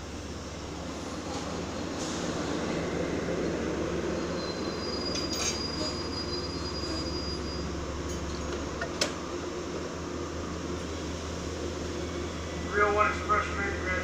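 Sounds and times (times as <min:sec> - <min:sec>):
train rumbling to a stop: 0:00.0 - 0:14.0
high brake squeal: 0:04.1 - 0:08.4
sharp click of train doors: 0:08.4 - 0:09.2.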